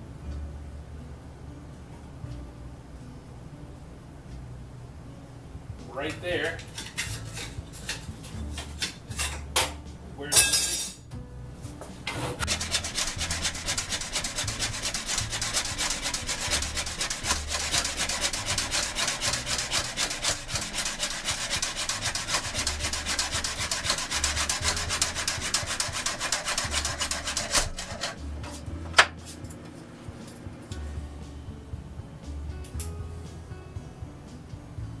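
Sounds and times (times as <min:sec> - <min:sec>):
hand saw cutting wood: 0:12.4 - 0:28.3.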